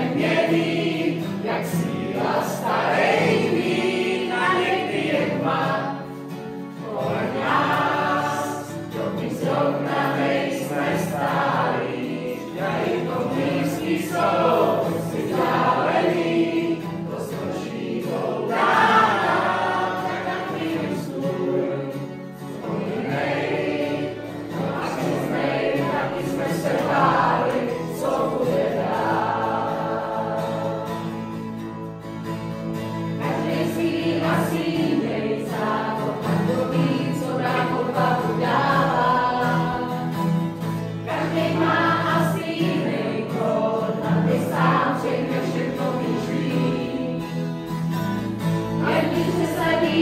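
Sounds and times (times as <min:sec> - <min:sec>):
group of voices singing: 0:00.0 - 0:31.9, 0:32.8 - 0:50.0
strummed acoustic guitar: 0:00.0 - 0:50.0.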